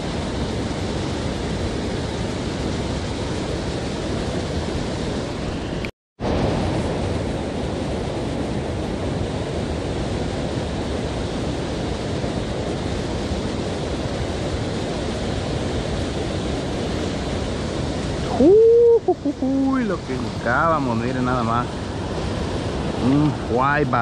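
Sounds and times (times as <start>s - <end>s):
river water rushing over weir: 0.0s - 24.0s.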